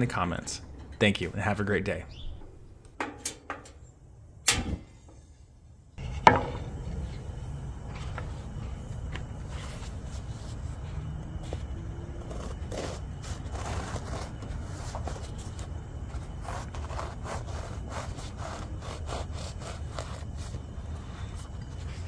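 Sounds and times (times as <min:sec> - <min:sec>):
low rumble: 0:00.0 - 0:03.0
knife sawing through crust: 0:16.4 - 0:20.6.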